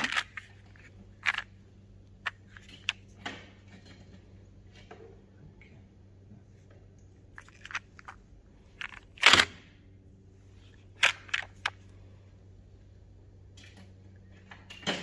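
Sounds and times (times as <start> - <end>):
plastic boxes clattering: 0.0 - 1.5, 7.3 - 9.5
steady low hum: 0.0 - 14.8
sharp plastic clicks: 11.0 - 11.8.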